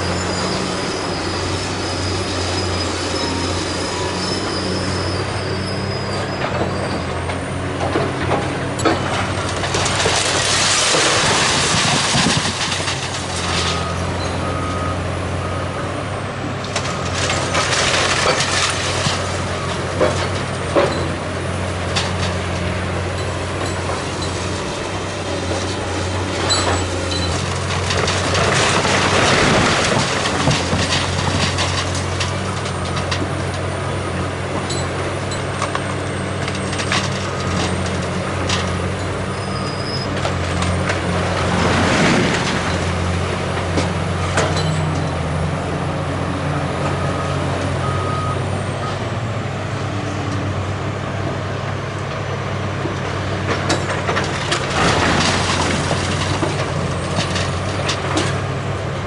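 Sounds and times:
excavator diesel engine running: 0.0 - 59.0
debris knocks: 7.9 - 13.8, 16.7 - 21.2, 26.4 - 33.3, 53.4 - 58.4
rubble crashing down: 8.2 - 14.0, 16.7 - 21.0, 26.5 - 33.2, 40.2 - 45.3, 53.4 - 58.4.

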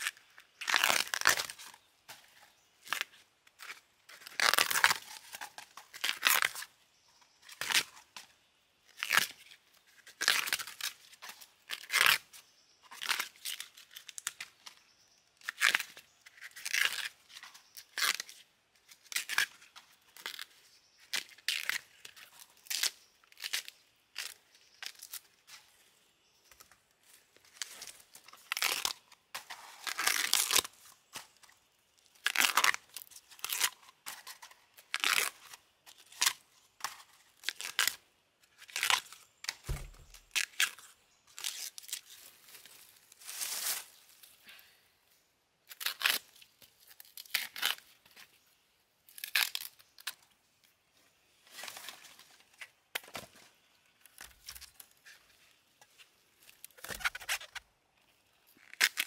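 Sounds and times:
bamboo sheaths tearing: 0.0 - 6.7, 7.5 - 8.0, 8.9 - 12.3, 12.9 - 14.6, 15.4 - 25.6, 27.4 - 31.5, 32.1 - 44.2, 45.6 - 48.3, 49.1 - 50.2, 54.0 - 55.2, 55.9 - 57.7, 58.5 - 59.0.

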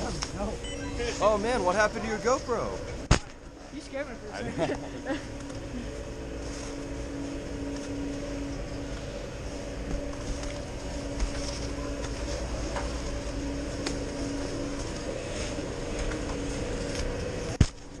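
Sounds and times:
chairlift machinery hum: 0.0 - 18.0
faint humming tone: 0.0 - 18.0
skis and poles on snow: 6.4 - 7.0, 9.9 - 18.0.

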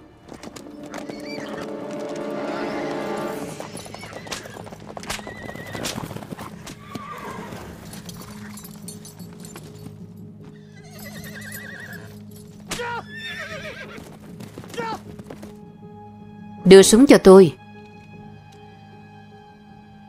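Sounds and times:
horse hoofbeats galloping: 0.0 - 15.7
film music: 0.0 - 20.0
horse whinnying: 0.3 - 8.6, 10.5 - 15.1.

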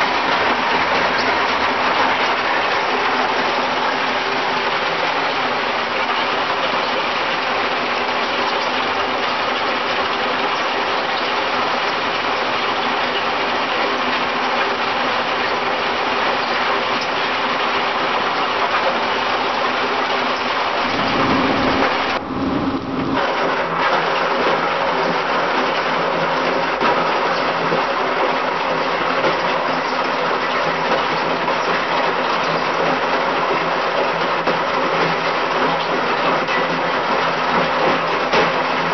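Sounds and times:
low rumble: 20.8 - 23.2
rock crusher droning: 20.8 - 23.8.

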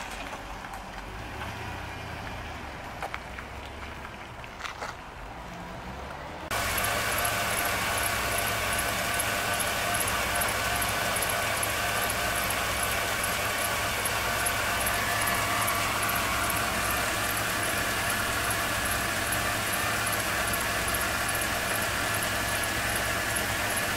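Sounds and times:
truck engine idling: 6.2 - 23.9.

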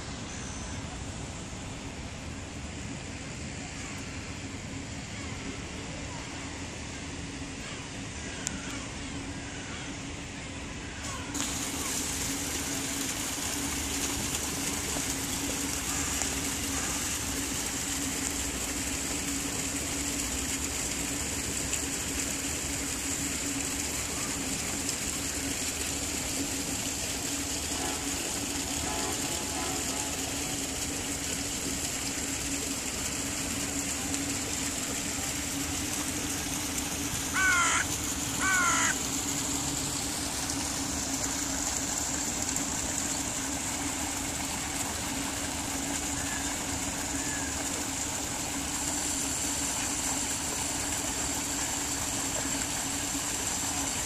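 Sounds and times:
running water: 0.0 - 54.0
crow cawing: 37.3 - 39.0.

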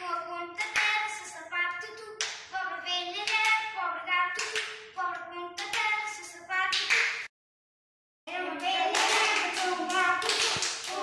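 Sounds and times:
child chanting sing-song: 0.0 - 6.9, 8.3 - 11.0
hand claps: 4.4 - 4.8, 6.7 - 7.3, 8.6 - 11.0.

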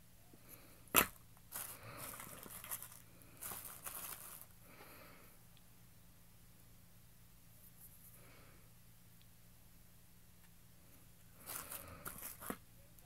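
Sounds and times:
bubble wrap crinkling: 0.9 - 4.6, 11.4 - 12.6.

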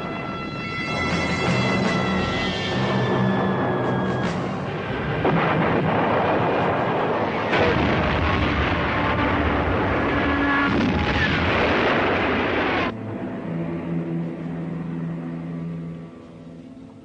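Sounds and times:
loud blast: 0.9 - 12.9
explosions and heavy rumble: 2.8 - 12.9.

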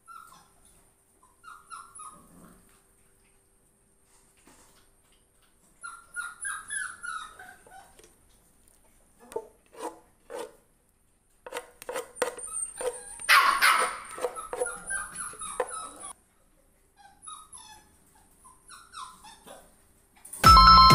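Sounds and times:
puppies whining and yipping: 0.0 - 2.3, 5.7 - 8.0, 12.3 - 16.2, 16.9 - 19.7
puppies barking: 12.4 - 16.2.

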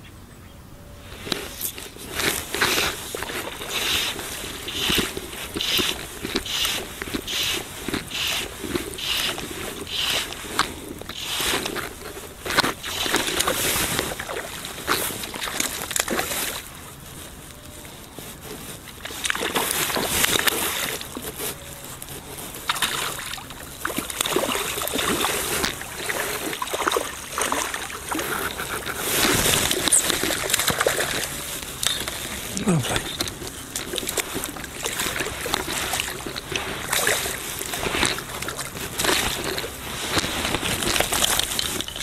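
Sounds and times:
fish splashing in water: 1.4 - 17.0, 22.6 - 42.0.

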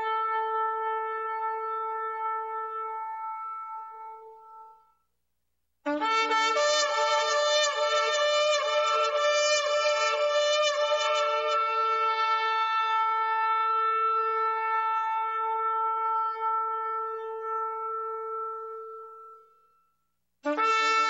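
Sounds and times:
shofar blast: 20.4 - 21.0.

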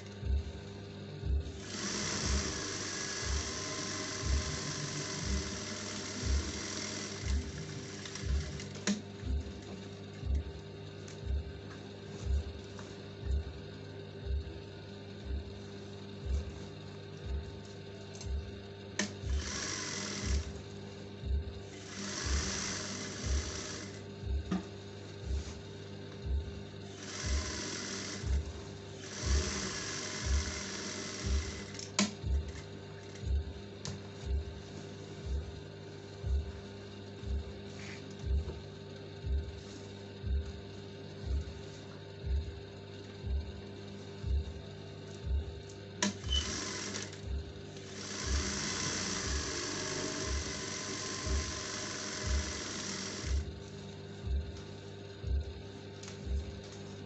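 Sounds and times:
sewing machine stitching: 1.6 - 9.0, 19.0 - 20.6, 21.8 - 24.0, 27.0 - 28.4, 29.0 - 31.9, 46.0 - 47.2, 47.8 - 53.4
background music with bass beat: 8.2 - 17.6, 24.2 - 27.6, 31.3 - 46.5, 53.3 - 57.0.

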